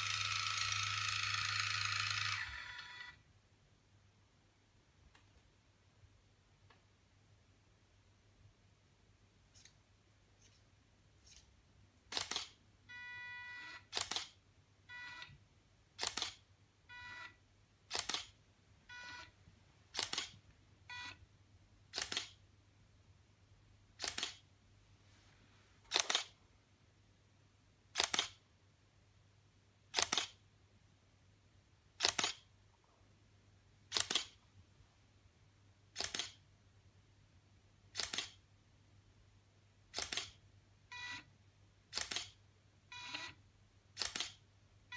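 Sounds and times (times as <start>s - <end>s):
camera shutter clicks: 0.0s - 3.1s, 12.1s - 12.6s, 13.8s - 14.4s, 16.0s - 16.4s, 17.9s - 18.4s, 19.9s - 20.4s, 22.0s - 22.4s, 24.0s - 24.4s, 25.9s - 26.4s, 28.0s - 28.4s, 30.0s - 30.4s, 32.0s - 32.4s, 33.9s - 34.4s, 36.0s - 36.4s, 38.0s - 38.4s, 39.9s - 40.4s, 41.9s - 42.4s, 44.0s - 44.4s.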